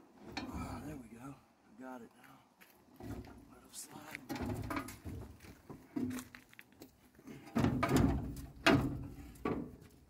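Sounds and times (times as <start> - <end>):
heavy metal clunks: 4.3 - 5.4, 7.4 - 9.9.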